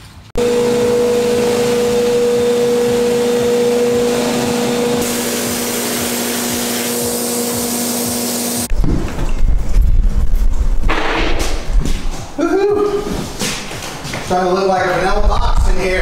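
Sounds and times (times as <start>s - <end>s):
motor hum: 0.4s - 8.8s
air hiss from spray gun: 5.0s - 8.7s.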